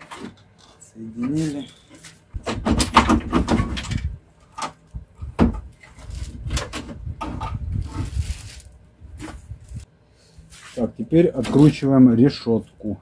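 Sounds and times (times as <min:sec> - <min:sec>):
headlight unit knocking and scraping: 0:02.4 - 0:08.0.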